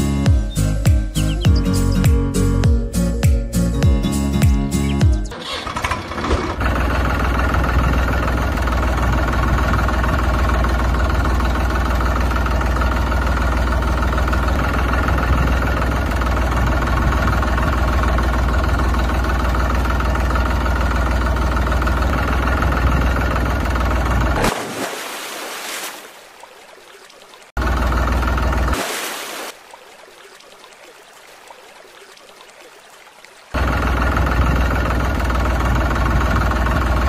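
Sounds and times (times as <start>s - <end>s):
tractor engine idling: 0.0s - 24.5s, 27.6s - 28.8s, 33.6s - 37.0s.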